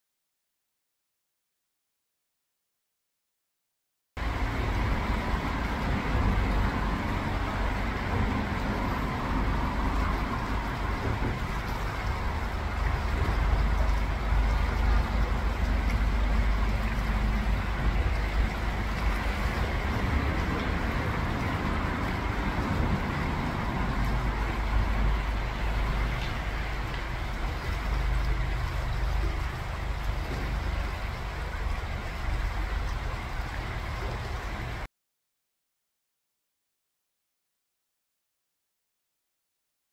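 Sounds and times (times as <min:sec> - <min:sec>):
creek water flowing: 0:04.2 - 0:34.9
faint small splashes: 0:04.2 - 0:34.9
low rumble: 0:04.2 - 0:34.9.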